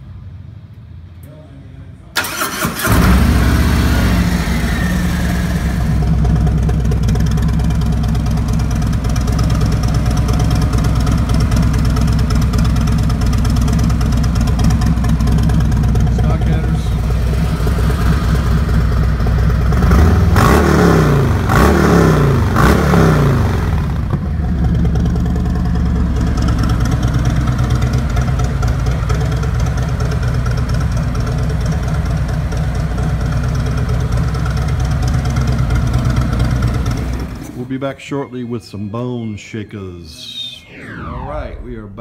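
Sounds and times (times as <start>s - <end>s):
motorcycle engine idling and revving: 2.8s - 37.5s.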